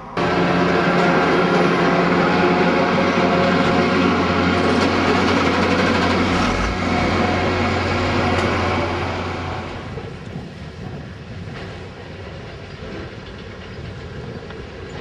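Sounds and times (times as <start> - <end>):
diesel engine humming: 0.0 - 10.2.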